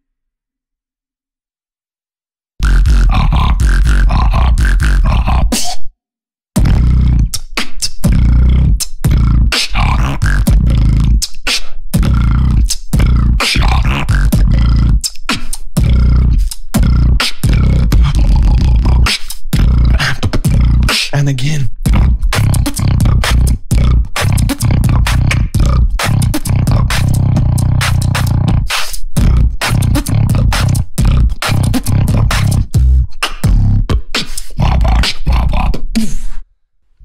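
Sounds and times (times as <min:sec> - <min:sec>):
deep heavy bass: 0:02.6 - 0:05.5, 0:06.6 - 0:07.4, 0:08.0 - 0:11.2, 0:12.0 - 0:15.0, 0:15.8 - 0:20.9, 0:21.8 - 0:33.9, 0:34.6 - 0:35.8
person beatboxing into microphone: 0:02.6 - 0:05.9, 0:06.6 - 0:36.4.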